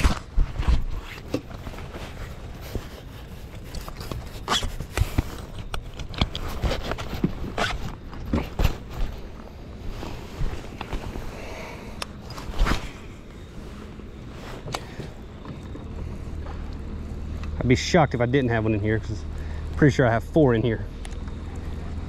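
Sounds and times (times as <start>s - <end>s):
life jacket rustling: 0.0s - 16.6s
zip being pulled: 7.5s - 7.8s.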